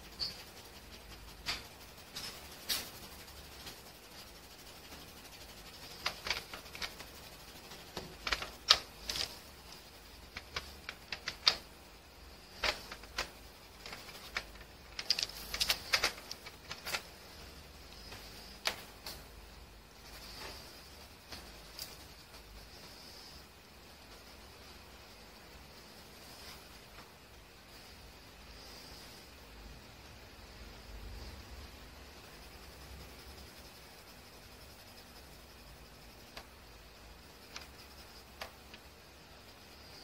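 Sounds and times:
pencil tapping and scratching on paper: 0.0s - 19.4s, 32.0s - 40.0s.

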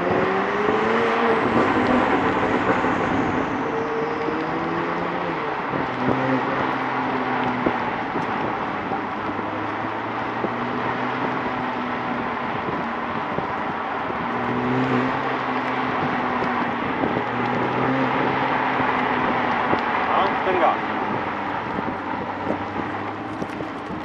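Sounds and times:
car engine cruising at low revs: 0.0s - 24.0s
constant rushing noise: 0.0s - 24.0s.

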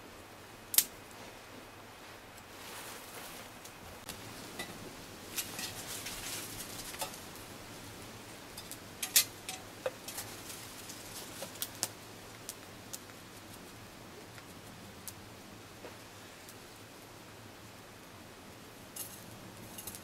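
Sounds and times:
campfire crackling and popping: 0.2s - 1.4s, 3.2s - 20.0s.

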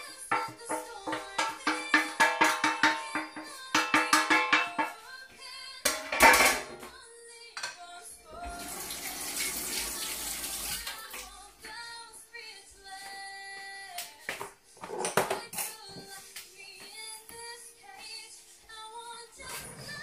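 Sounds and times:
background music: 0.0s - 20.0s
glass dish and utensils clattering: 0.3s - 5.0s, 5.9s - 6.8s.

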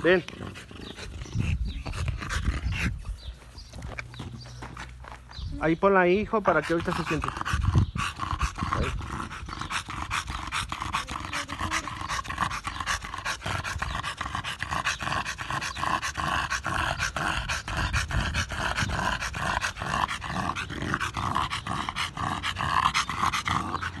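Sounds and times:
dog panting: 0.0s - 24.0s.

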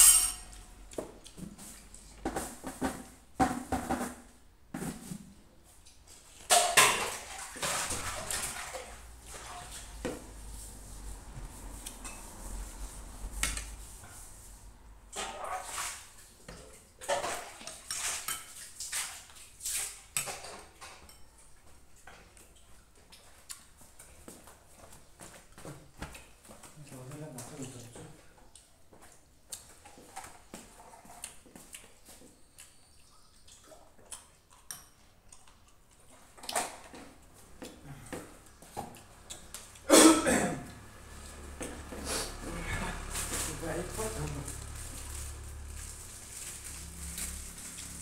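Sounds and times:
spoon clinking against glass bowls: 0.0s - 0.6s
chewing and lip-smacking: 22.4s - 23.8s, 30.9s - 36.6s.

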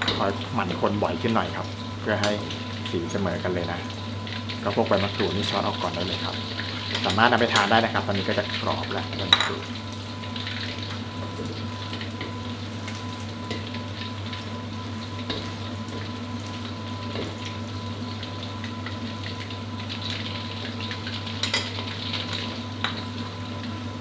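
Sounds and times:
chicken deep-frying in oil: 0.0s - 24.0s.

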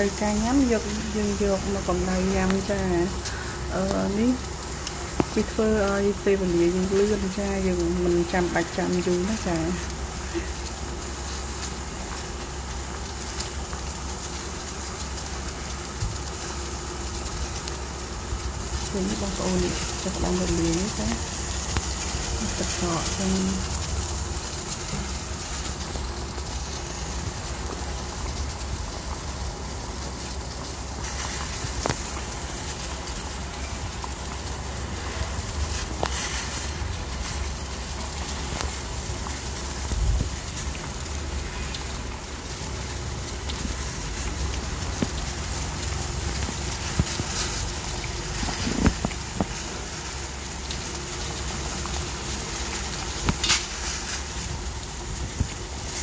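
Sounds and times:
broth boiling in a pot: 0.0s - 56.0s.

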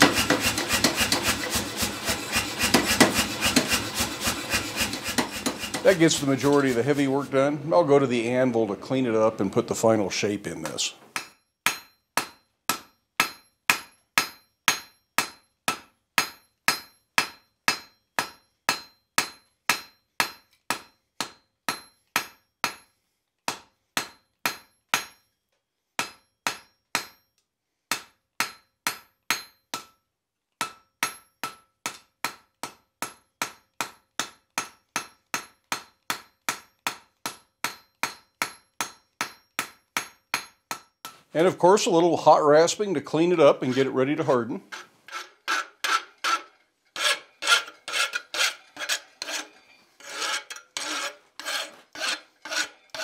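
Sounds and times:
hammer ringing on anvil: 11.2s - 22.9s, 28.4s - 30.0s, 30.6s - 31.6s, 33.0s - 40.9s.

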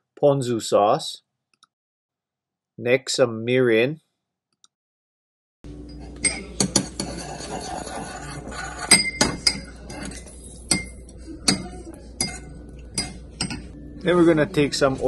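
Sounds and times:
metal spoon clinking in bowl: 5.9s - 7.2s, 8.7s - 13.7s.

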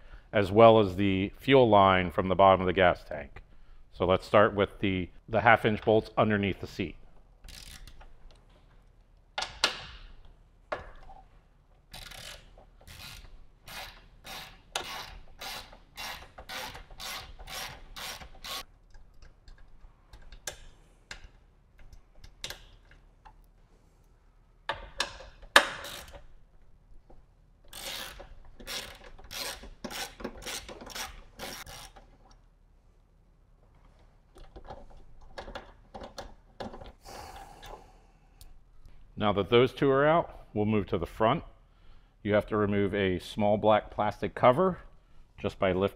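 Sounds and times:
ratchet wrench clicking: 7.5s - 8.0s, 11.9s - 18.6s, 25.0s - 26.3s, 27.7s - 32.1s.

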